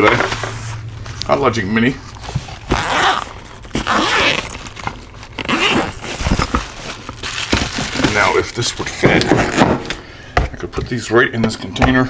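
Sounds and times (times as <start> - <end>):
fabric case rustling: 2.1 - 9.6
zipper rasping open: 2.6 - 7.3.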